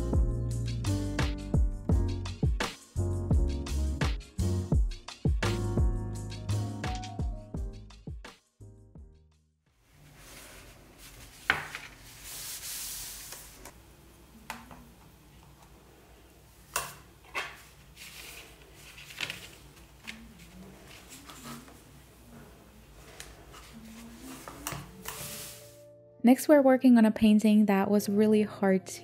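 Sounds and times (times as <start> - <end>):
paper rustling: 10.0 - 13.7, 17.3 - 22.0, 23.0 - 25.8.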